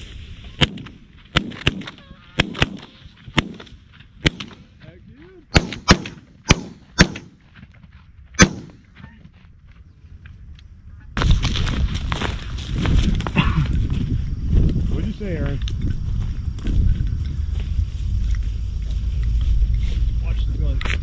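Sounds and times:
shotgun shots: 0.6 - 4.7, 5.5 - 7.4, 8.4 - 8.8.

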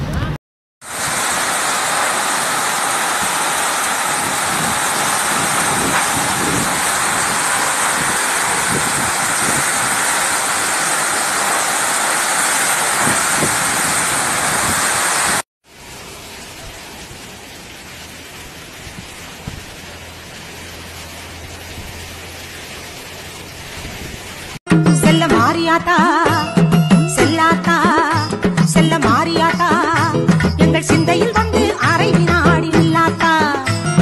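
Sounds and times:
heavy rain pouring: 0.0 - 30.2
quieter steady rain: 0.1 - 24.6.

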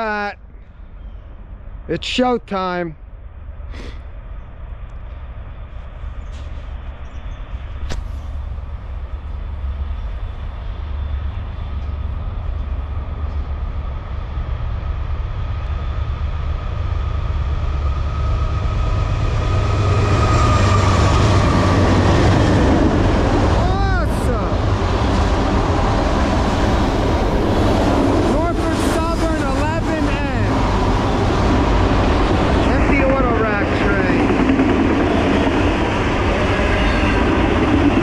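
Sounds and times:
diesel train engine rumble: 0.0 - 38.0
high steady whine: 0.0 - 38.0
sharp click: 7.8 - 8.2.

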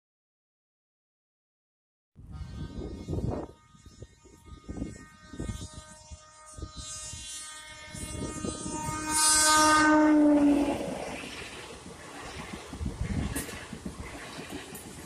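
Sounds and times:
train horn blast: 2.2 - 11.4
train rumbling on track: 8.0 - 15.0.

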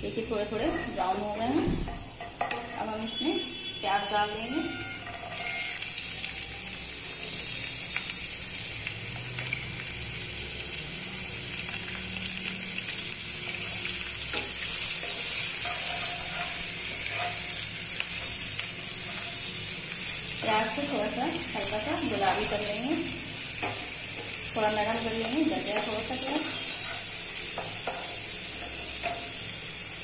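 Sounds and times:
onions sizzling in oil: 0.0 - 30.0
wooden spatula scraping: 4.7 - 5.9, 14.3 - 17.6, 25.0 - 29.2.

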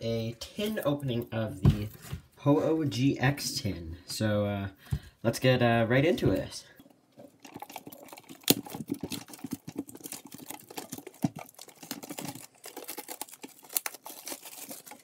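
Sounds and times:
plastic shrink-wrap crinkling: 7.2 - 15.0.

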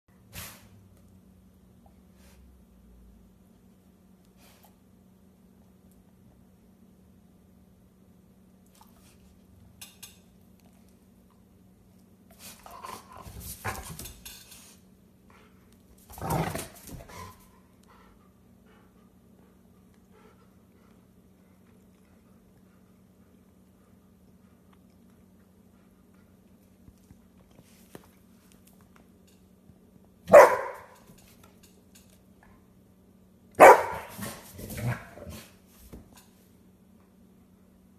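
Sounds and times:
dog barking gruff woof: 30.3 - 31.0, 33.6 - 34.2.

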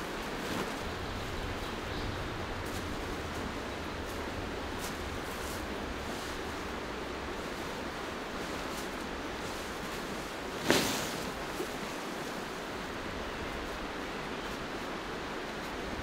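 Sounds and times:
river water rushing: 0.0 - 16.0
tarp flapping swish: 0.2 - 1.6, 7.4 - 12.4.

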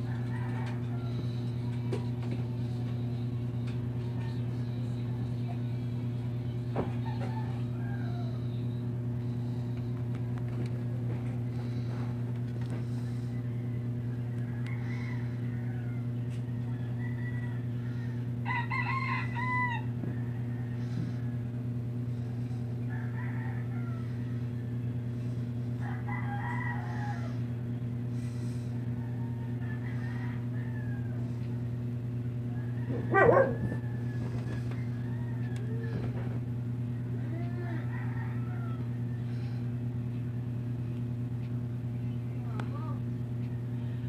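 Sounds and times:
rooster crowing: 0.0 - 2.0, 6.6 - 9.6, 12.9 - 40.0
steady low hum: 0.0 - 44.0
chicken calls: 22.3 - 36.3.

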